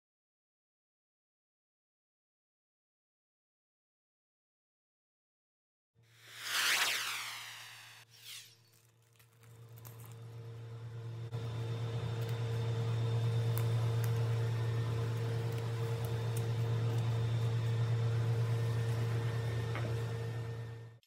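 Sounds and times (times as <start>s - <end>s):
low machine hum: 9.4s - 21.0s.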